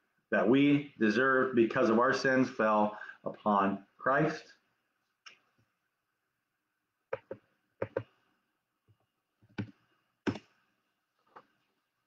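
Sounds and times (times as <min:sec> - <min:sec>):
typing clicks and taps: 0:07.1 - 0:08.2, 0:09.4 - 0:10.5.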